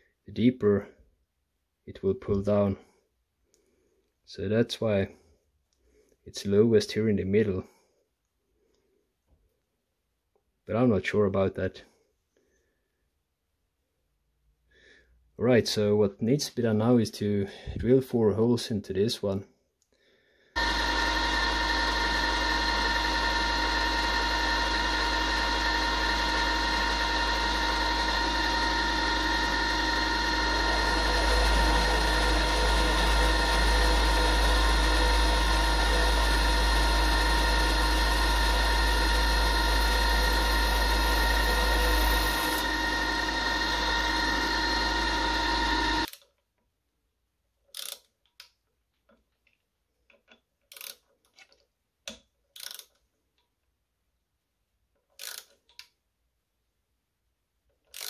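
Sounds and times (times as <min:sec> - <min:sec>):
end mill cutting metal: 0:20.6 - 0:46.1
milling machine motor whining: 0:20.6 - 0:46.1
screwdriver clicks: 0:50.1 - 0:53.0.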